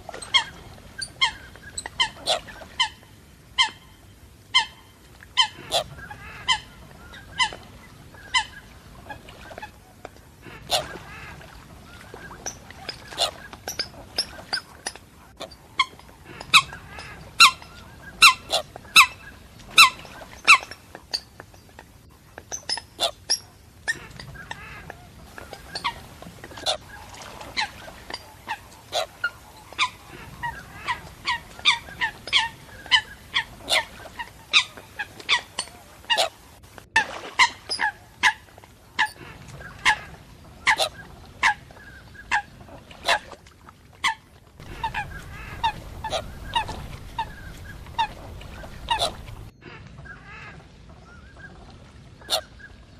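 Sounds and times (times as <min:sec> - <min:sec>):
waterbirds calling: 0:00.0 - 0:52.9
low rumble: 0:44.6 - 0:49.5.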